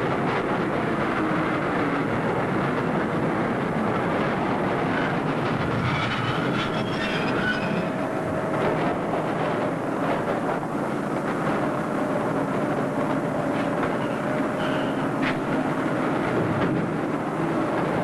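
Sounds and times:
subway train rumbling on track: 0.0s - 18.0s
high wheel squeals: 5.8s - 8.2s, 13.9s - 15.1s.

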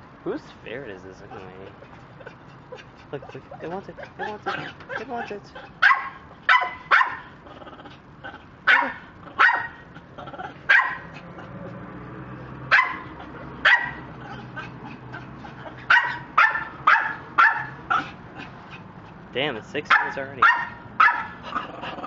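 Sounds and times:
dog barking: 4.0s - 7.3s, 8.6s - 11.2s, 12.7s - 14.7s, 15.5s - 18.2s, 19.9s - 21.7s.

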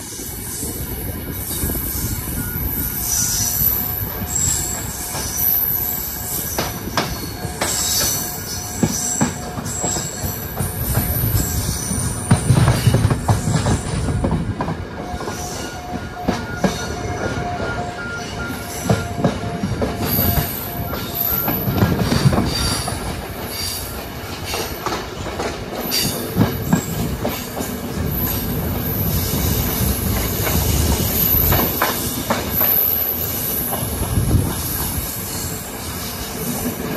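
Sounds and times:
train carriage rumble: 0.0s - 36.9s
high wheel squeals: 1.4s - 14.2s.

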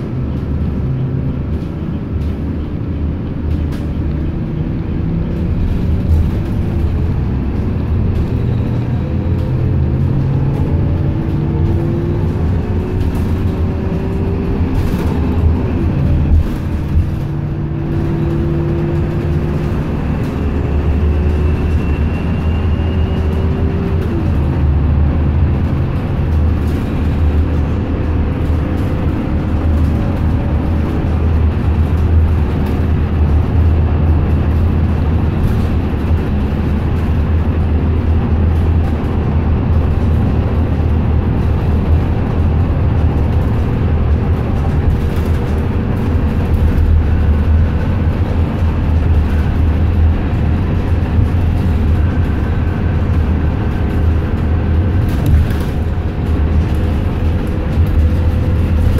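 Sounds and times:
bus engine drone: 0.0s - 58.9s
road noise: 0.0s - 58.9s.

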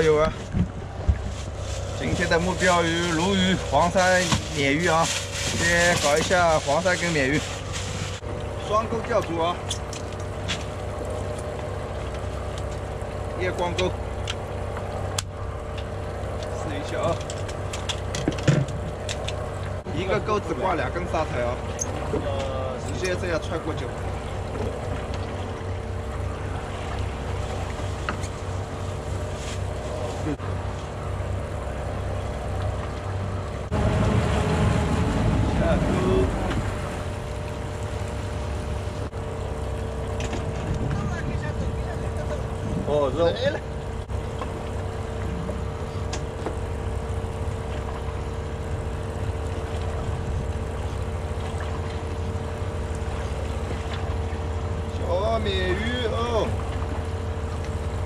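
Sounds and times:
boat engine idling: 0.0s - 58.0s
constant whine: 0.0s - 58.0s
wind on microphone: 40.1s - 43.4s, 48.6s - 50.8s.

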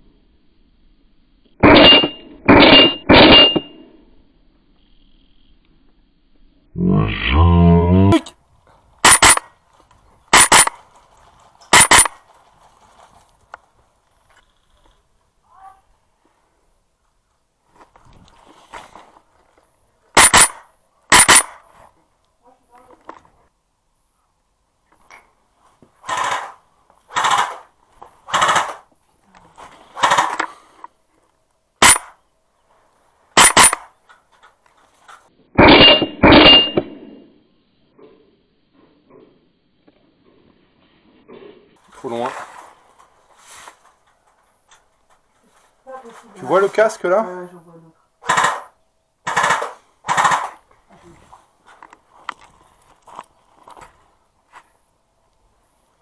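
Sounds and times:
airsoft rifle shots: 1.6s - 3.7s, 9.0s - 9.5s, 10.3s - 10.8s, 11.7s - 12.2s, 20.2s - 21.6s, 26.0s - 27.7s, 28.3s - 28.9s, 30.0s - 30.6s, 31.8s - 32.2s, 33.4s - 33.9s, 35.6s - 37.2s, 48.2s - 50.6s
low drone falling in pitch: 6.7s - 8.3s
short rattling bursts: 9.0s - 9.5s, 10.3s - 10.9s, 11.7s - 12.2s, 20.2s - 21.6s, 26.0s - 28.9s, 29.9s - 30.6s, 33.4s - 33.9s, 48.2s - 50.7s.

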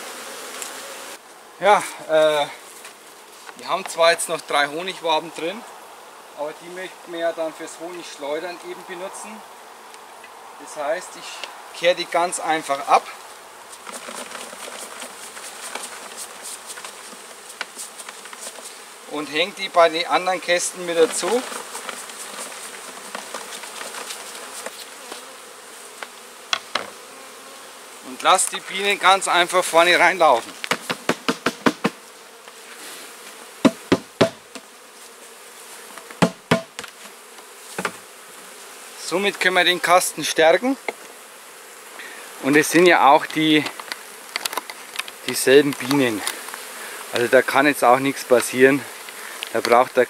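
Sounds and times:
honeybees buzzing: 0.0s - 50.0s
scratchy brush strokes: 12.1s - 25.3s, 32.6s - 33.4s
knocks on plastic bucket: 30.5s - 32.0s, 33.6s - 34.6s, 36.1s - 37.0s, 37.8s - 38.0s.

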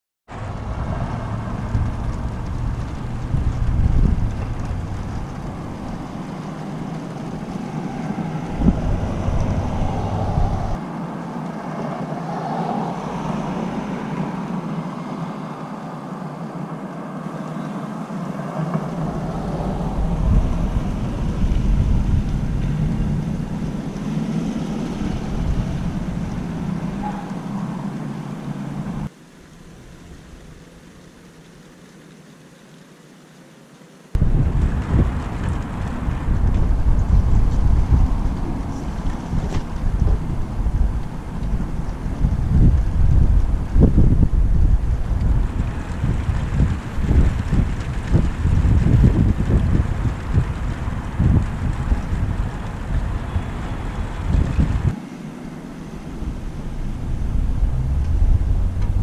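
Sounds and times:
deep low rumbles: 0.3s - 10.8s, 18.4s - 29.1s, 34.2s - 55.0s, 55.7s - 59.0s
gusty storm wind: 0.3s - 29.1s, 34.1s - 59.0s.

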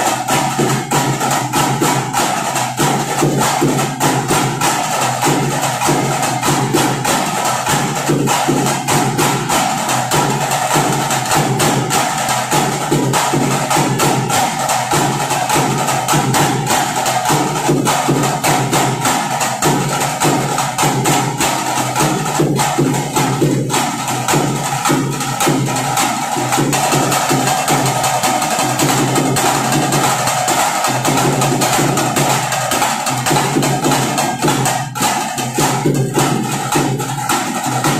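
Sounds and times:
folk drums: 0.0s - 37.9s.

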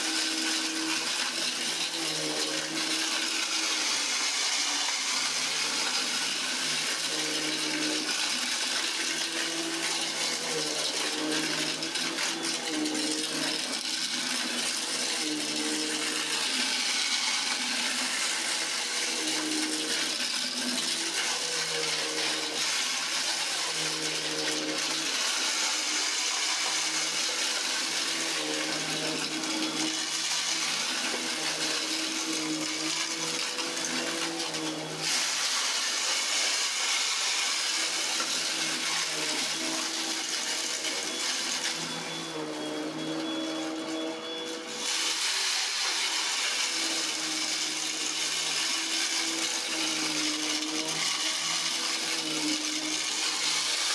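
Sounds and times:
vacuum cleaner running on carpet: 0.0s - 53.9s.

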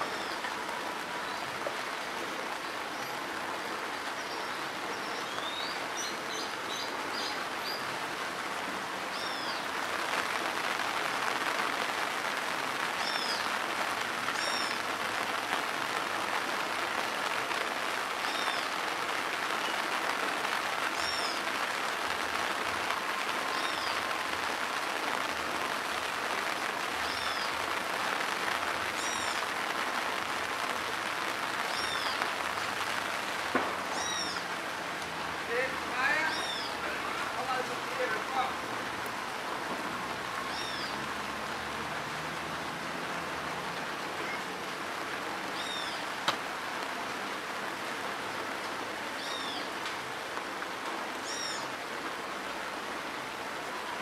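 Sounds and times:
rain falling on dirt road: 0.0s - 54.0s
bird calling: 9.1s - 9.6s, 14.4s - 14.8s, 18.2s - 18.8s, 20.9s - 21.5s, 27.0s - 27.6s, 29.0s - 29.4s, 31.6s - 32.3s, 33.9s - 34.5s, 36.0s - 38.5s, 40.4s - 41.0s, 45.5s - 46.1s, 49.2s - 49.7s, 51.2s - 51.8s.

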